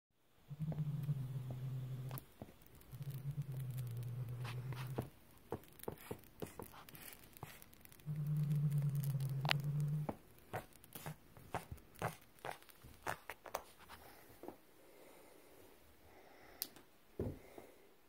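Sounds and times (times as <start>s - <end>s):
cat growling: 0.5s - 2.2s, 2.8s - 5.1s, 8.0s - 10.2s
teeth and claws on feathers: 0.7s - 14.1s.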